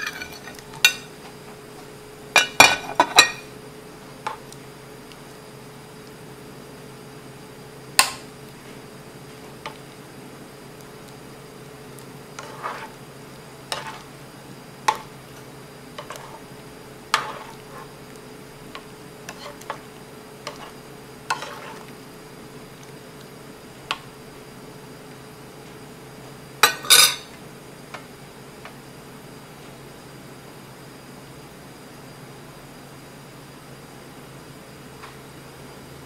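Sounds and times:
metal spoon scraping a pot: 0.0s - 1.0s, 12.4s - 13.0s, 13.7s - 14.0s, 17.2s - 17.9s, 19.3s - 19.8s, 20.4s - 21.9s
spoon clattering down: 0.0s - 1.1s, 2.4s - 3.5s, 26.6s - 27.3s.

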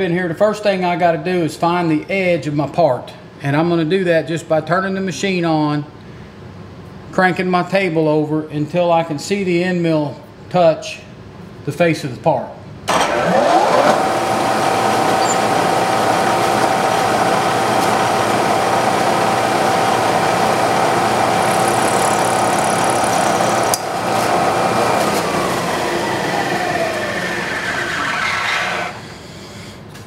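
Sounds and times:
mill spindle whine: 12.9s - 29.7s.

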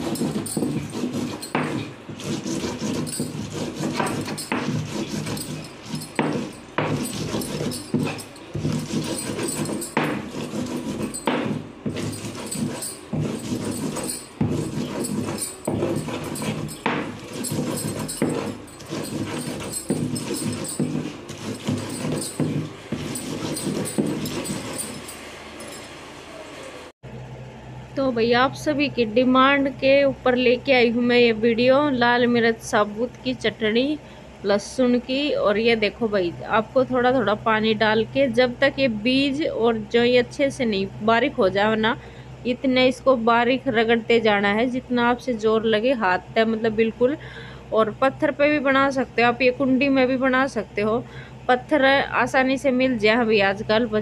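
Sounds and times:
grinding stone knocking: 0.0s - 25.9s
grinding stone scraping: 0.0s - 25.9s.

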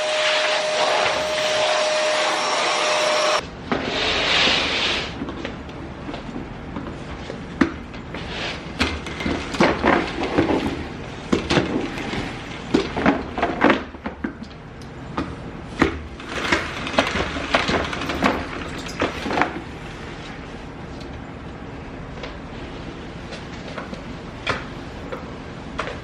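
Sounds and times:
spin mop clattering in bucket: 16.2s - 19.6s.

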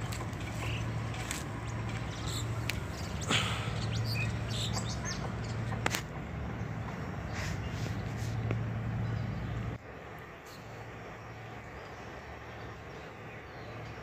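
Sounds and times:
birds chirping: 0.0s - 14.0s
steady low hum: 0.0s - 14.0s.

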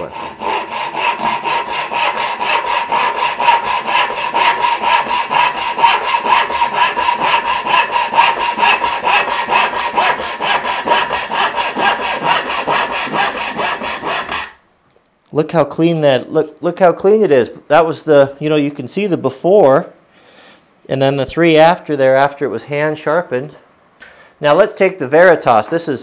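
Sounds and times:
hand saw cutting wood: 0.0s - 14.6s.

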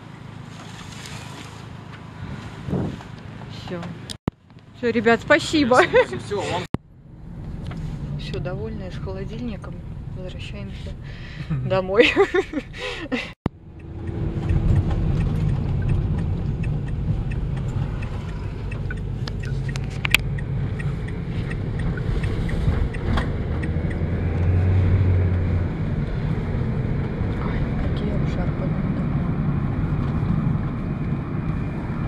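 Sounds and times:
van engine and tyres rumbling: 0.0s - 32.0s.

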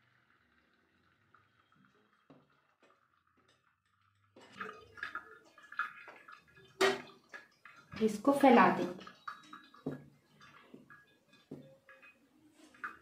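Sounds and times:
water trickling and dripping: 0.0s - 13.0s
water splashing: 4.3s - 13.0s.

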